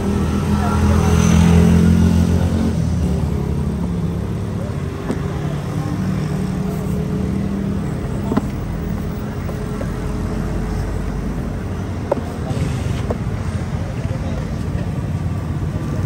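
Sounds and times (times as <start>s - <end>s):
street traffic: 0.0s - 16.0s.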